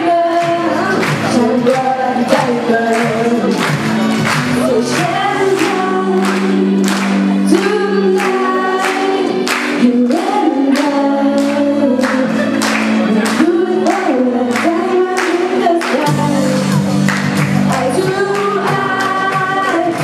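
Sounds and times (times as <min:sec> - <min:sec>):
several voices singing: 0:00.0 - 0:16.6.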